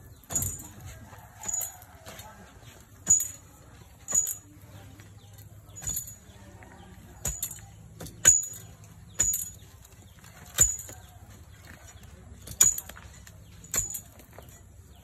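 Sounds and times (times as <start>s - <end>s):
metal bar striking hard ground: 0.1s - 4.6s, 5.3s - 14.7s.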